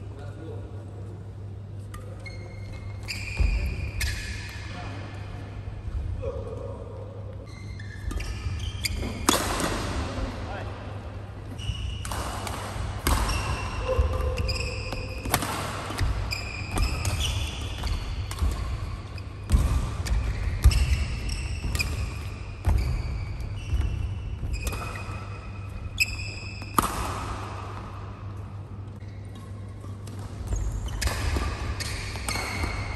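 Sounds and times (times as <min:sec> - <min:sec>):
shoes squeaking on court: 0:01.9 - 0:04.8, 0:07.3 - 0:10.6, 0:11.5 - 0:12.2, 0:13.1 - 0:26.8, 0:28.3 - 0:32.9
racket hitting shuttlecock: 0:08.0 - 0:10.5, 0:11.5 - 0:28.5, 0:29.4 - 0:32.9.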